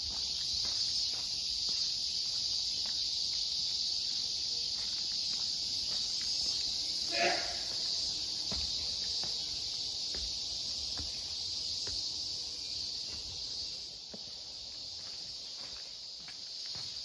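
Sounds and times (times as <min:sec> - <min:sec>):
insects chorus: 0:00.0 - 0:17.0
soft footsteps: 0:07.7 - 0:17.0.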